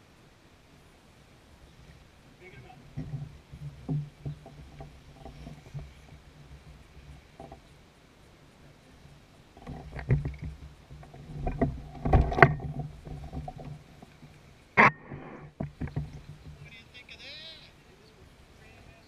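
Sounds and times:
landing net clattering: 9.6 - 16.7.

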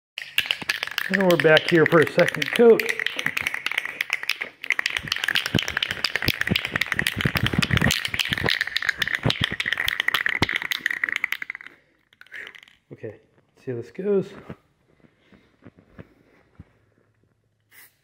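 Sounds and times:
spray can rattling: 0.2 - 12.8.

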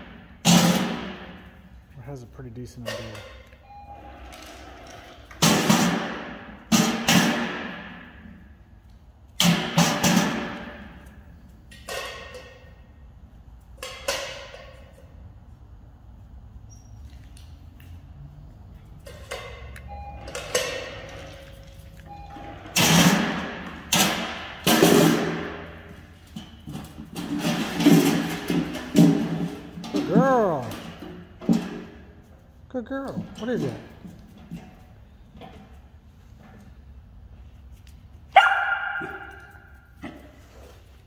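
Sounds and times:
loud sharp bangs: 0.0 - 1.6, 5.4 - 8.2, 22.8 - 25.8.

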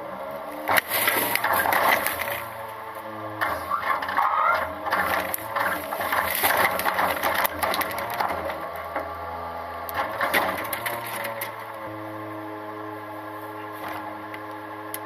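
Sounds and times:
truck engine and hydraulics running: 0.0 - 15.0
trash cart rattling and knocking: 0.7 - 2.6, 3.4 - 8.6.

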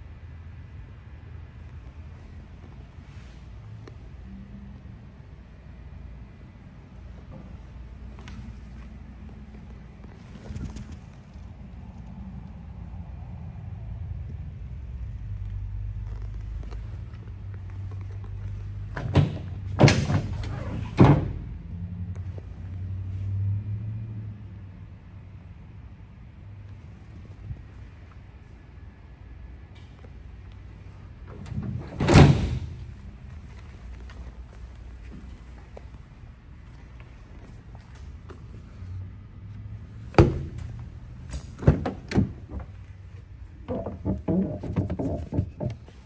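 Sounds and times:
steady low hum: 0.0 - 23.4.

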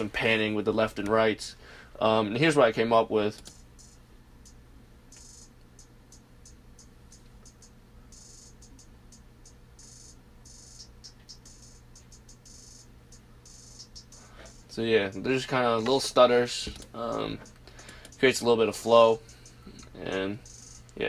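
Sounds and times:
low steady hum: 0.0 - 21.0
hi-hat pattern with rolls: 3.4 - 21.0.

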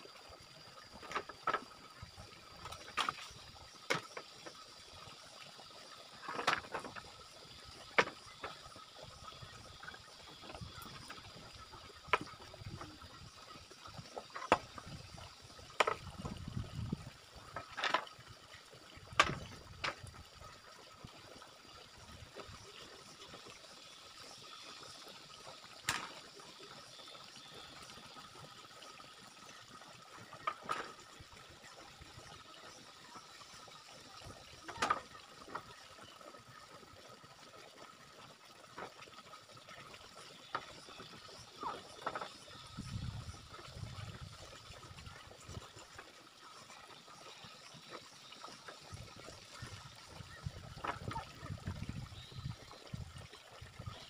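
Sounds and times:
bamboo poles knocking: 6.2 - 7.0, 7.9 - 8.6, 14.3 - 14.9, 15.8 - 16.4, 19.1 - 20.0.

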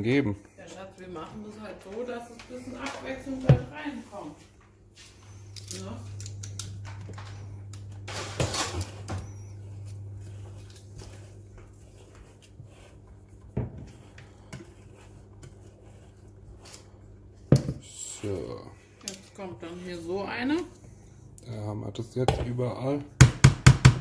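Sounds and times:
low steady hum: 0.0 - 24.0
spatula scraping cake batter: 8.1 - 18.6.

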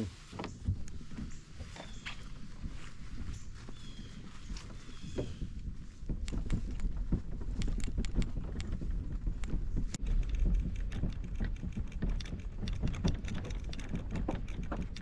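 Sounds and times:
microphone handling rumble: 0.0 - 15.0
footsteps on grass: 0.2 - 6.1
clicks and rustles: 0.3 - 15.0.

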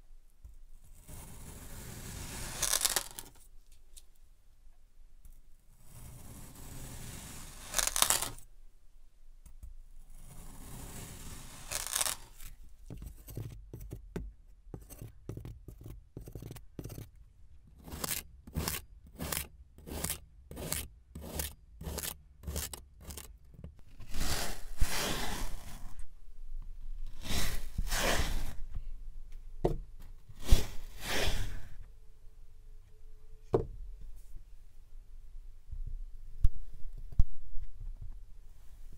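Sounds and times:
knife slicing through sand: 10.4 - 12.5, 17.8 - 23.3, 24.0 - 26.0, 27.1 - 28.6, 30.4 - 31.8.

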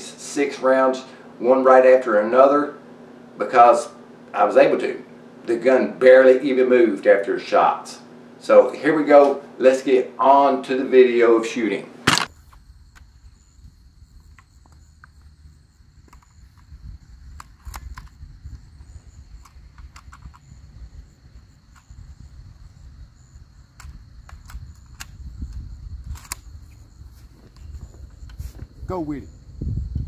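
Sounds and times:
high insect drone: 0.0 - 30.0
low wind rumble: 12.4 - 30.0.

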